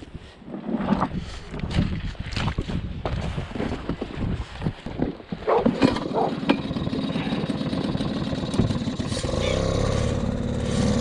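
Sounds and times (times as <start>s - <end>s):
boots splashing through water: 1.5s - 5.8s
outboard motor idling: 5.6s - 11.0s.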